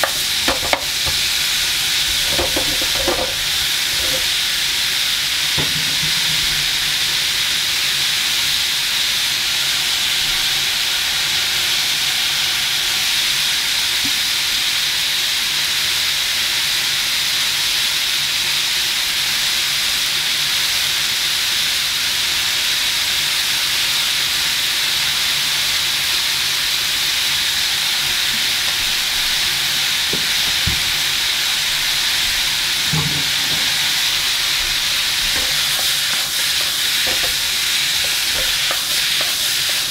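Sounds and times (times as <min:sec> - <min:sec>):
vegetables sizzling in a frying pan: 0:00.0 - 0:39.9.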